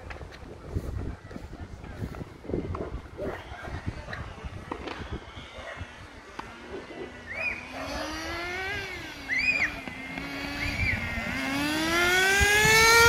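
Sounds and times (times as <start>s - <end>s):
toy car electric motor whining: 7.2s - 13.0s.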